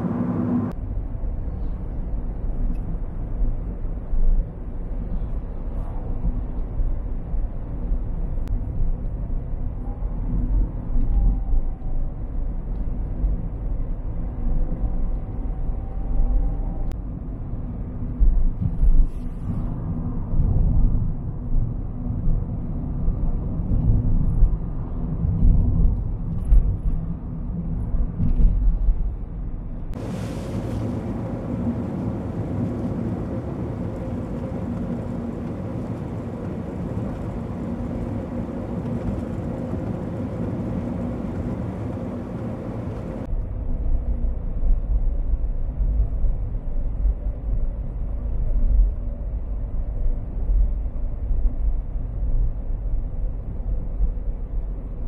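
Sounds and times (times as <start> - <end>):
car road rumble: 0.0 - 55.0
smooth bright road hiss: 30.0 - 34.6.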